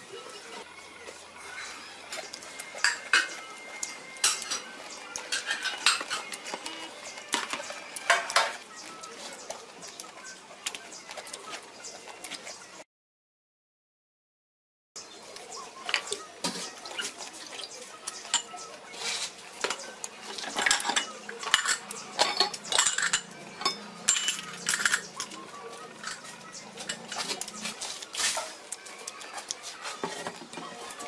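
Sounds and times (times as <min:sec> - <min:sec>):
chopsticks clinking on ceramic plate: 0:20.4 - 0:25.1.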